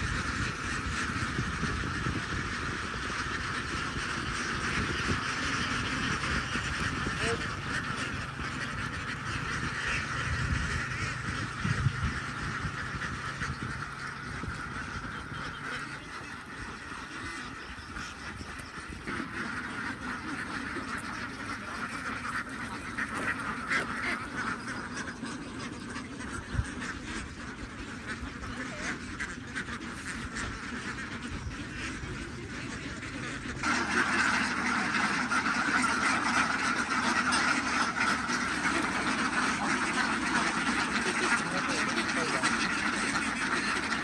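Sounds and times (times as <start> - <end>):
flock of ducks quacking: 0.0 - 44.0.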